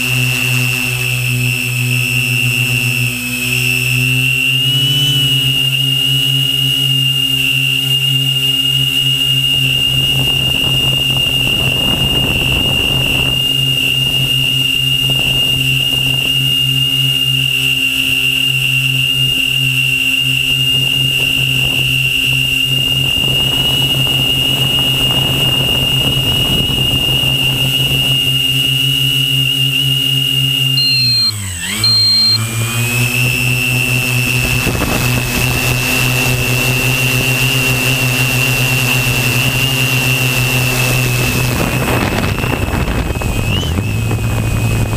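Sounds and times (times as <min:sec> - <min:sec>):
drone motors whining: 0:00.0 - 0:44.9
short high beep: 0:30.8 - 0:32.5.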